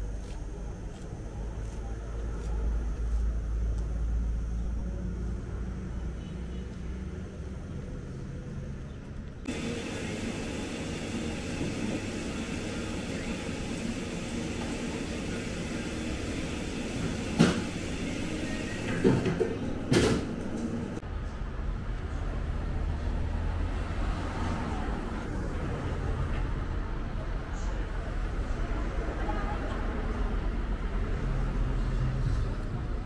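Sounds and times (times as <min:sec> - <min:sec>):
low outdoor rumble: 0:00.0 - 0:09.6
cafe room noise: 0:09.4 - 0:33.0.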